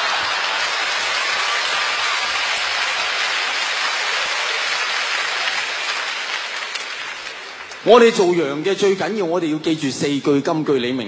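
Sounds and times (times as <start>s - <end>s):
large audience applauding: 0.0s - 9.0s.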